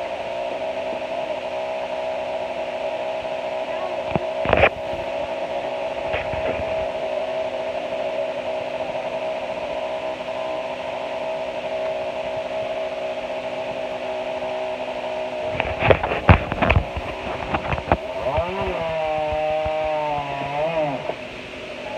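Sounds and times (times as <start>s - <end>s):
engine idling: 3.7s - 21.9s.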